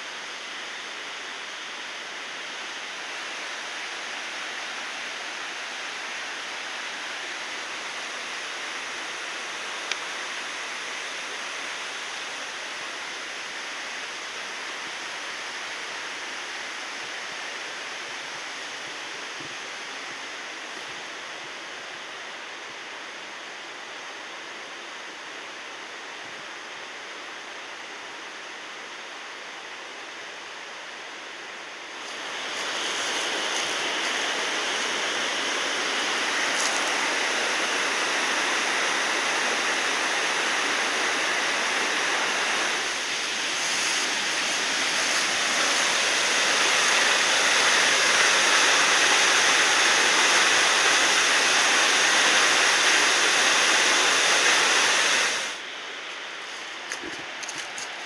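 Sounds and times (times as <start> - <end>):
waterfall roaring: 0.0 - 58.0.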